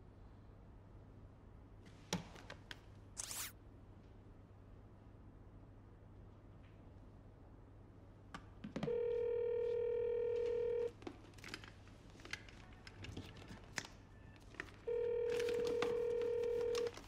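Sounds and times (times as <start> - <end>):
telephone ringback tone: 8.9 - 10.9, 14.9 - 17.0
faint clicks and rustles: 10.3 - 17.0.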